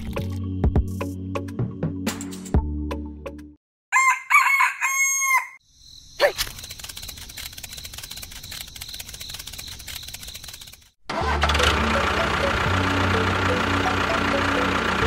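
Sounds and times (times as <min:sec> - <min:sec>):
rooster crowing: 0:03.9 - 0:05.6
fast rattling clicking: 0:06.4 - 0:11.0.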